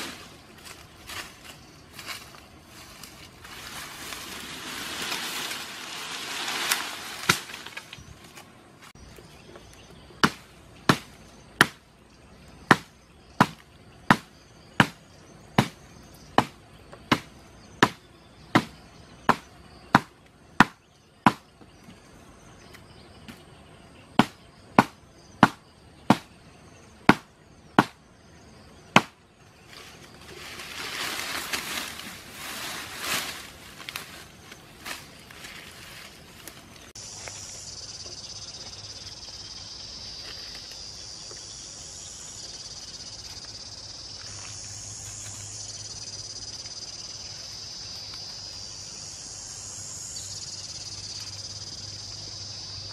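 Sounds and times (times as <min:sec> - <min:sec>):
grass and brush rustling: 0:00.0 - 0:11.8, 0:29.0 - 0:48.9
blade chopping wood: 0:10.2 - 0:11.8, 0:12.7 - 0:15.0, 0:15.6 - 0:15.8, 0:16.4 - 0:18.0, 0:18.6 - 0:21.4, 0:24.2 - 0:26.3, 0:27.1 - 0:28.0, 0:29.0 - 0:29.2.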